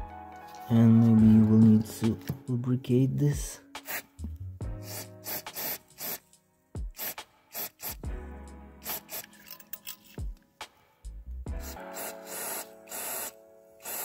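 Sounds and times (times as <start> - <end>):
background music: 0.0 - 14.0
aerosol spray hissing: 3.8 - 4.2, 4.8 - 6.2, 6.9 - 8.0, 8.8 - 9.3.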